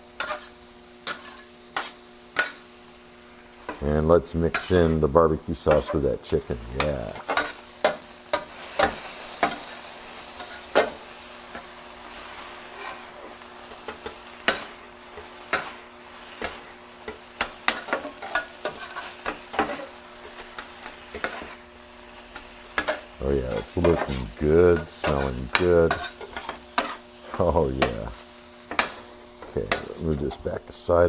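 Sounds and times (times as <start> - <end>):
chicken sizzling on griddle: 0.0 - 31.0
metal spatulas scraping griddle: 0.2 - 2.6, 3.6 - 21.7, 22.3 - 30.6
spatula blades clacking on steel: 5.7 - 9.7, 13.9 - 15.8, 16.4 - 21.5, 22.8 - 27.0, 28.7 - 30.4.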